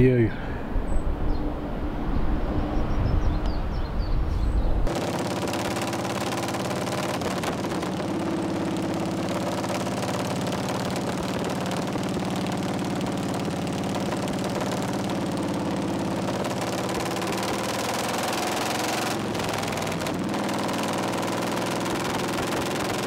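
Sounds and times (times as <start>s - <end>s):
motorcycle engine running: 4.9s - 23.0s.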